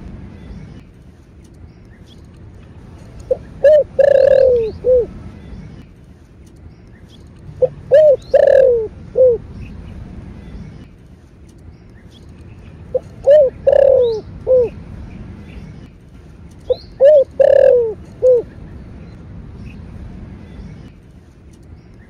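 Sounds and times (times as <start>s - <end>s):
dove cooing: 3.2s - 5.2s, 7.5s - 9.5s, 12.9s - 14.8s, 16.7s - 18.5s.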